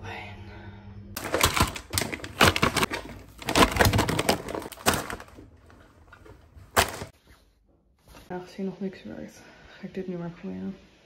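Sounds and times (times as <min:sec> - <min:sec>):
plastic packaging crinkling: 0:01.2 - 0:07.1.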